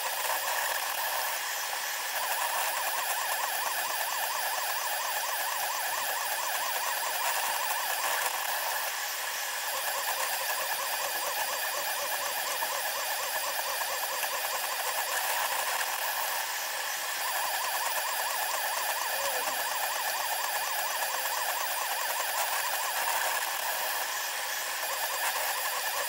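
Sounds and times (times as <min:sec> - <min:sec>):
high warbling motor whine: 0:13.6 - 0:26.0.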